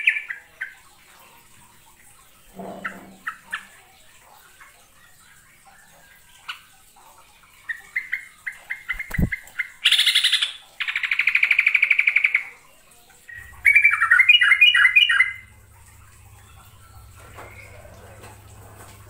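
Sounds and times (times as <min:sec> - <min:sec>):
bulbul chirping and chattering: 0:07.6 - 0:12.5.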